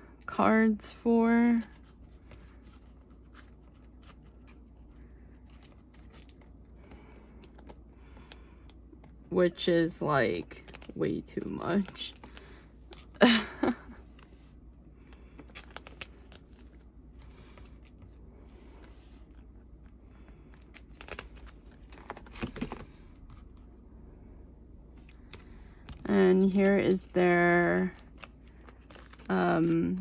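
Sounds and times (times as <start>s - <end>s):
plastic sleeves crinkling: 1.4s - 9.2s, 10.2s - 23.6s, 25.0s - 30.0s.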